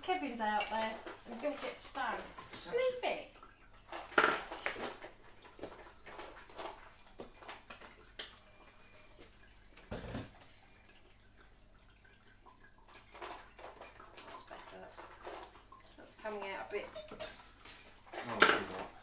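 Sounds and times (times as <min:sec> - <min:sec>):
crockery and utensils clinking: 0:18.2 - 0:18.9.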